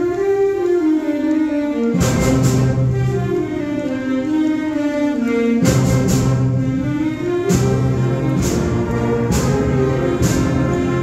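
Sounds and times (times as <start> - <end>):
concert band playing: 4.6 - 11.0.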